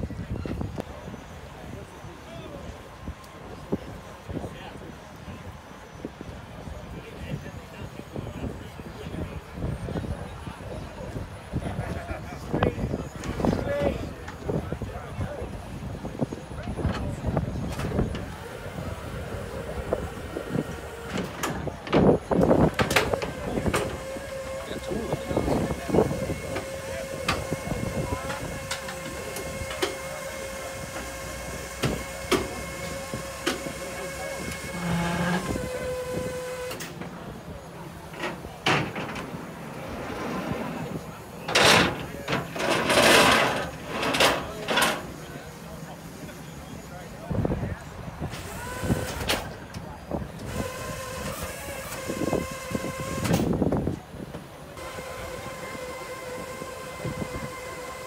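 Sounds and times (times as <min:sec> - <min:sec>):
hydraulic pump motor humming: 0:17.0 - 0:39.8, 0:48.3 - 0:49.4, 0:50.4 - 0:53.7, 0:54.8 - 0:58.0.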